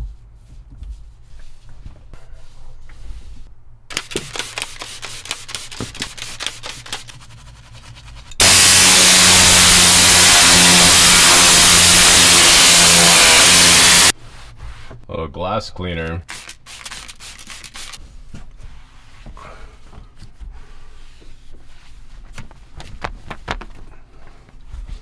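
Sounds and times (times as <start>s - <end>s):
brush scrubbing: 3.0s - 8.4s, 16.3s - 18.0s
air rush from cleaning tool: 8.4s - 14.1s.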